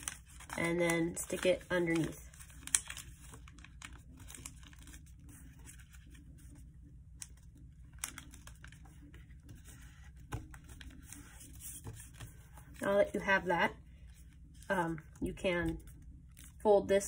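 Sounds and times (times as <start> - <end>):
paper crinkling: 0.0 - 13.3
paper rustling: 0.0 - 13.4.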